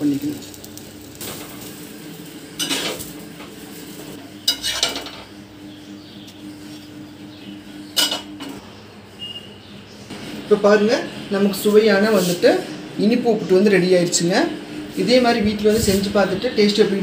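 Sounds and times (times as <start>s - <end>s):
utensils clattering on iron griddle: 0.2s - 5.3s, 8.0s - 8.6s.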